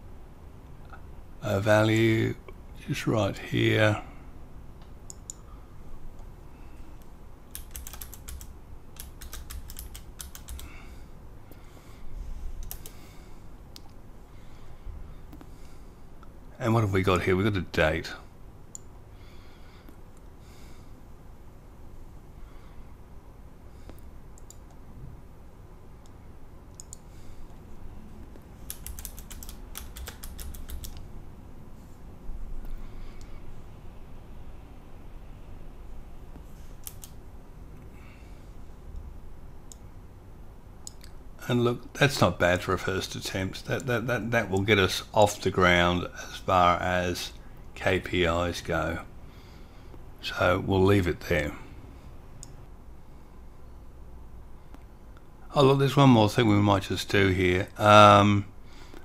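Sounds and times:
computer keyboard typing: 7.5 - 10.8, 12.6 - 13.0, 28.6 - 31.0, 36.8 - 37.2.

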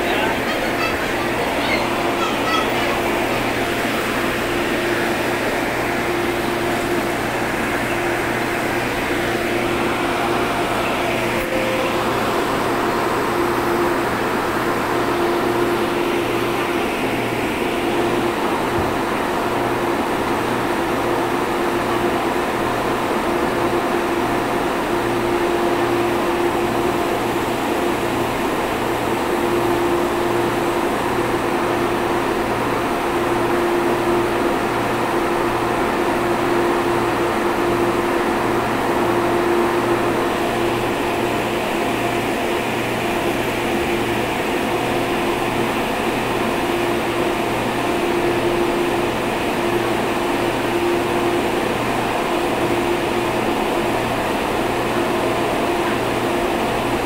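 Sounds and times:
train air conditioning hum: 0.0 - 57.0
low tone: 10.7 - 13.8.

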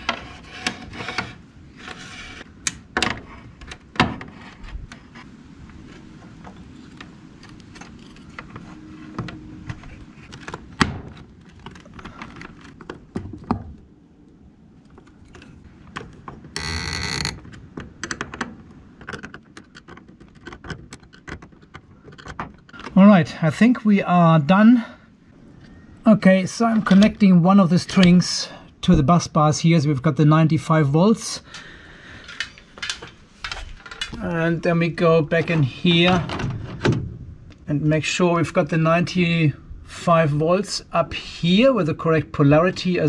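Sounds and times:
tools and cables rattling: 0.0 - 13.7, 17.3 - 23.0, 32.2 - 34.2.

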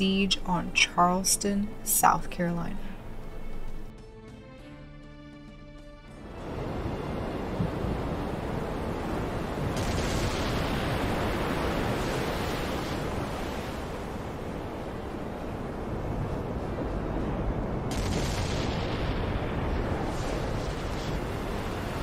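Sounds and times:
wind: 6.1 - 22.0
sea waves: 6.2 - 22.0.

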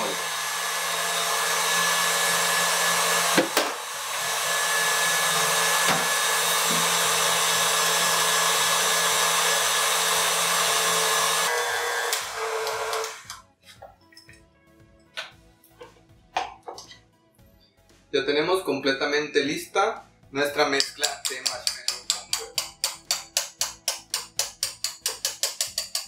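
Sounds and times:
stand mixer motor running: 0.0 - 13.3.

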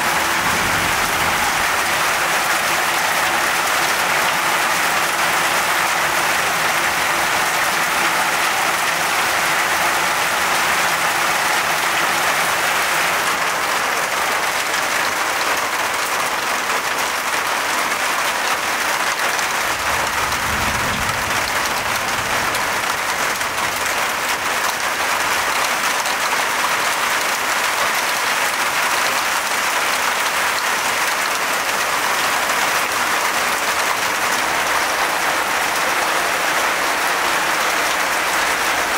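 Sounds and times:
low rumble: 0.0 - 2.6, 19.4 - 23.9
heavy rain pouring: 0.0 - 38.9.

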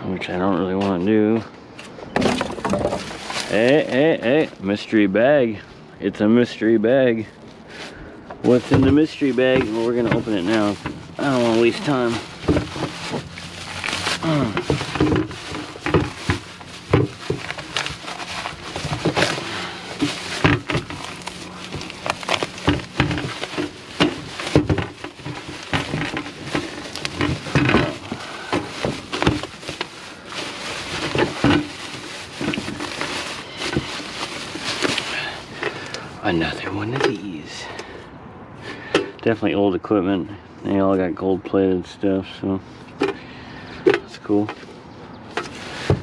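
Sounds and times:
plastic bag rustling: 2.1 - 5.1, 6.4 - 37.6, 45.3 - 46.0.

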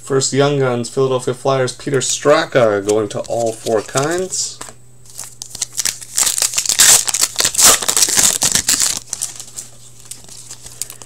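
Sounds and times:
trading cards rustling: 2.6 - 11.0.

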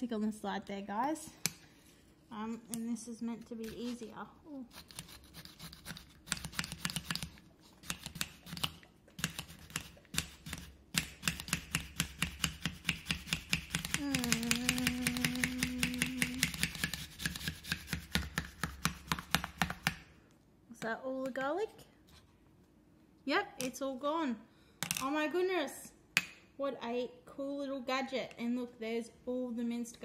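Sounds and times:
garlic grater scraping: 3.6 - 10.8
person holding a sung note: 14.0 - 16.5.

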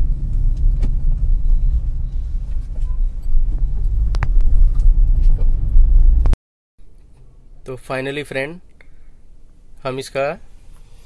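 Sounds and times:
car engine and road noise: 0.0 - 7.6.

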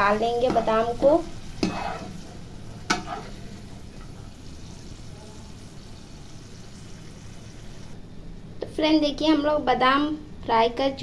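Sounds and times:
hot oil sizzling: 0.0 - 8.0.

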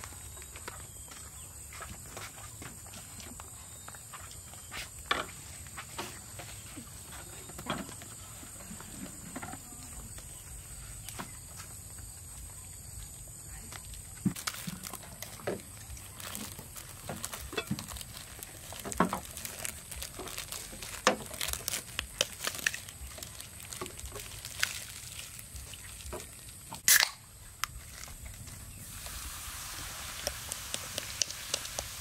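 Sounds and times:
plastic wrap crinkling and tearing: 14.3 - 32.0
soda can opening snap: 26.8 - 27.2
soda fizzing while poured: 28.8 - 32.0.

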